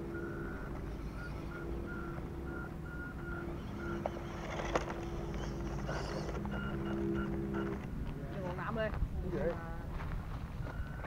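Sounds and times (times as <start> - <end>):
small electric motors whining: 0.0 - 8.0
short high beeps: 5.8 - 7.8.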